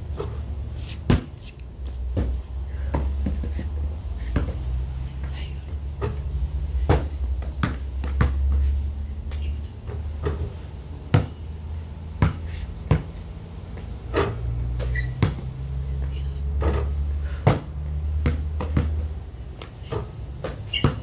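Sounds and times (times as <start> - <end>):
basketball bouncing and thudding: 0.1 - 3.6, 4.3 - 4.7, 6.0 - 8.6, 9.9 - 11.5, 12.2 - 15.6, 16.6 - 21.0.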